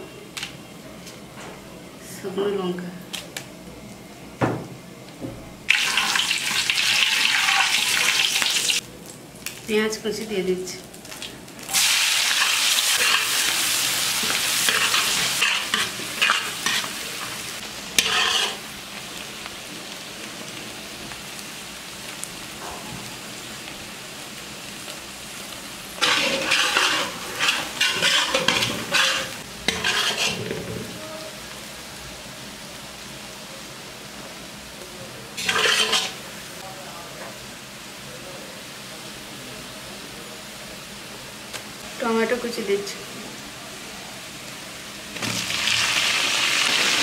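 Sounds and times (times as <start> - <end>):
onion sizzling in oil: 5.6 - 47.0
stirring and scraping pan: 12.4 - 18.6, 26.0 - 31.0, 35.4 - 36.2.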